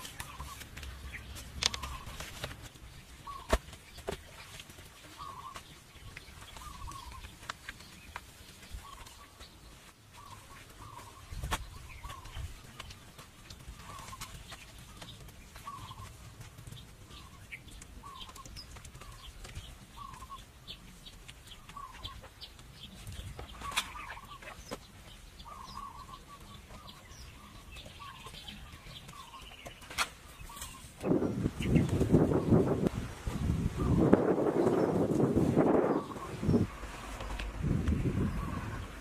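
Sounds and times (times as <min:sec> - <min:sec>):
chickens clucking: 0:00.0 - 0:39.0
wind on microphone: 0:31.0 - 0:39.0.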